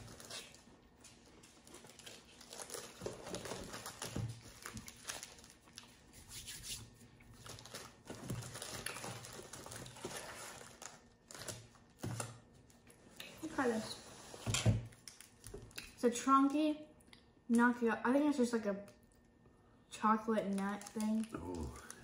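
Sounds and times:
plastic wrappers crinkling: 0:00.0 - 0:06.1, 0:07.3 - 0:12.8, 0:20.5 - 0:22.0.

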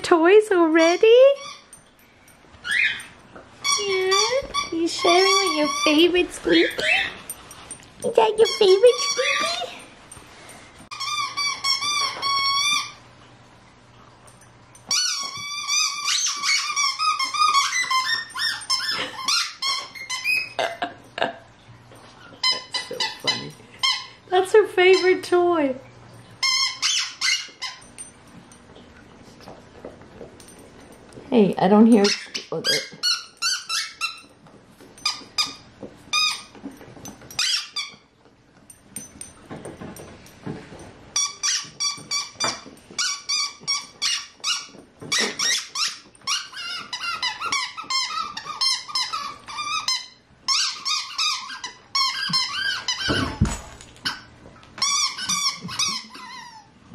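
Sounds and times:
squeaky dog toy squeaking: 0:00.8 - 0:01.8, 0:02.6 - 0:07.4, 0:08.0 - 0:09.9, 0:10.9 - 0:13.0, 0:14.9 - 0:20.6, 0:22.4 - 0:25.3, 0:26.4 - 0:28.1, 0:31.9 - 0:34.4, 0:35.0 - 0:36.6, 0:37.3 - 0:38.1, 0:41.2 - 0:56.8.

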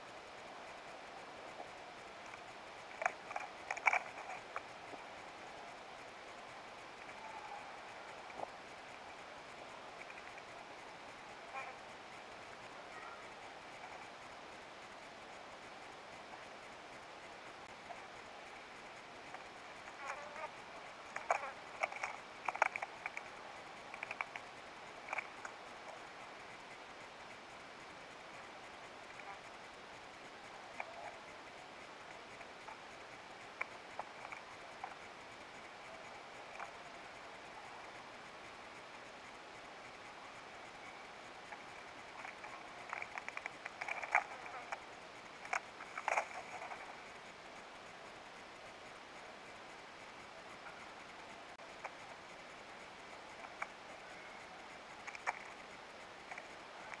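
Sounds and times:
bird pecking at peanut shells: 0:02.2 - 0:04.7, 0:09.9 - 0:10.5, 0:19.3 - 0:26.0, 0:41.5 - 0:46.9, 0:55.0 - 0:55.6
peanut shells clicking and rattling: 0:21.1 - 0:25.6.

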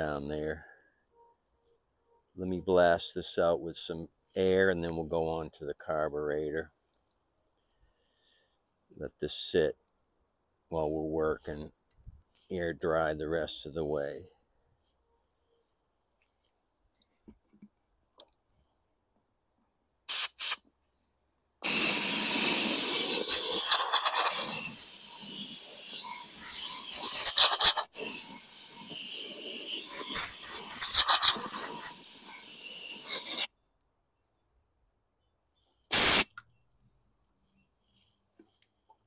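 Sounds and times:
compressed-air blowgun hissing: 0:20.1 - 0:20.6, 0:21.6 - 0:33.5, 0:35.9 - 0:36.3.

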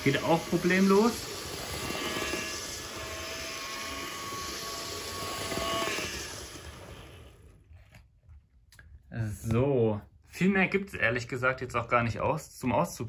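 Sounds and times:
model train motor whirr: 0:00.0 - 0:07.5.

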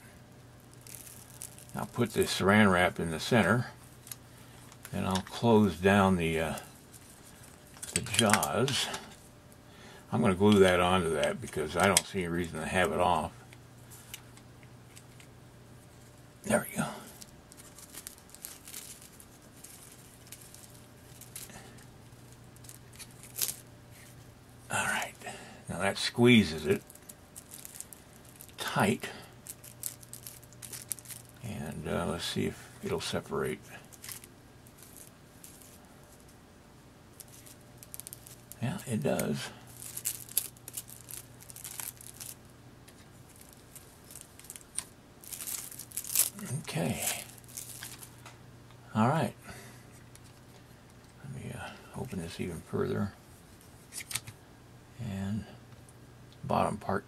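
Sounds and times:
cling wrap crinkling: 0:00.6 - 0:09.2, 0:13.9 - 0:36.4, 0:37.1 - 0:48.4.

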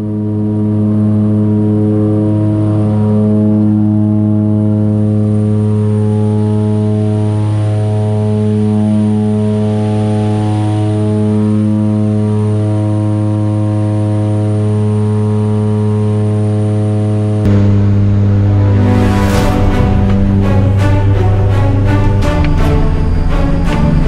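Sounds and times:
propeller plane engine drone: 0:00.0 - 0:24.0.

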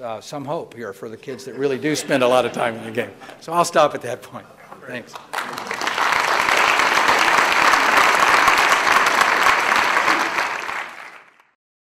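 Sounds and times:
audience applauding: 0:05.1 - 0:11.6.

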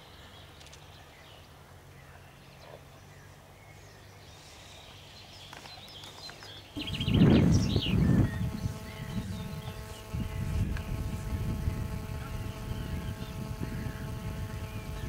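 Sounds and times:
faint bird chirps: 0:02.0 - 0:10.6
steady hum: 0:06.8 - 0:15.0
wind rumbling on microphone: 0:06.8 - 0:15.0.

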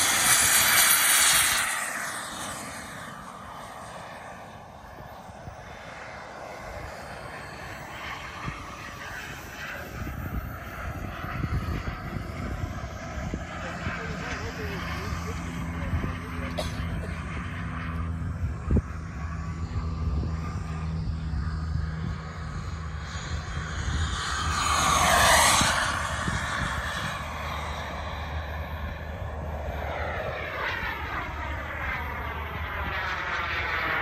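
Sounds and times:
model jet turbine flying past: 0:00.0 - 0:34.0.

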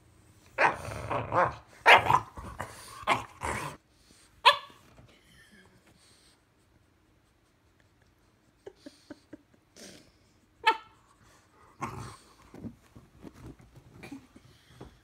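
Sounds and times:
dogs growling and barking: 0:00.5 - 0:03.8, 0:11.6 - 0:12.7.

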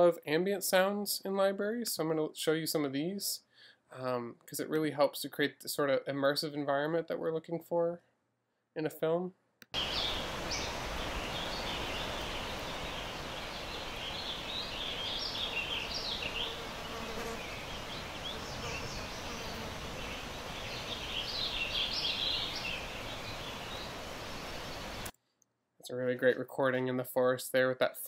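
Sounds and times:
birds chirping: 0:09.8 - 0:25.1
fly buzzing: 0:09.8 - 0:25.1
wind through trees: 0:09.8 - 0:25.1.

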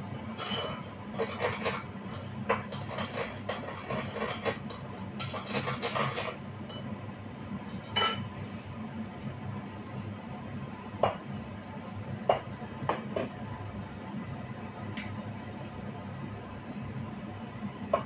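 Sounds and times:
dishes and utensils clinking: 0:00.3 - 0:07.0, 0:07.8 - 0:08.4.

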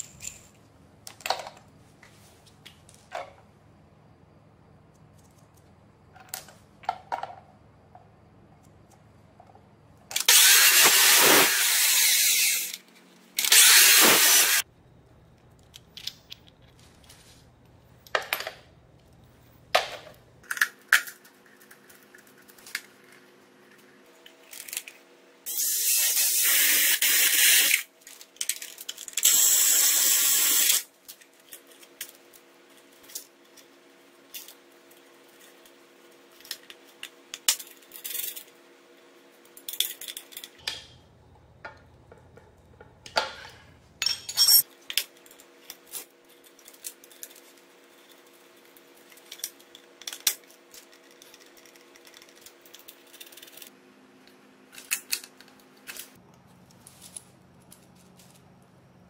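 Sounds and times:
metal parts clinking: 0:00.0 - 0:00.6, 0:28.1 - 0:29.8, 0:39.5 - 0:41.0, 0:41.6 - 0:47.6
cordless power tool whirring: 0:10.2 - 0:12.7, 0:13.4 - 0:14.6.

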